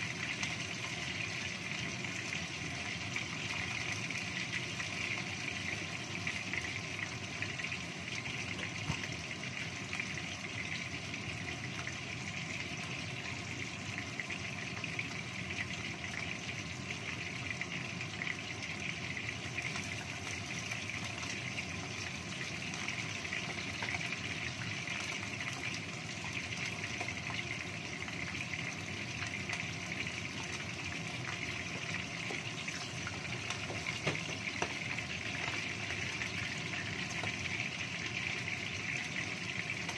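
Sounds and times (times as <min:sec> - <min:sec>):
fish sizzling in hot oil: 0:00.0 - 0:39.9.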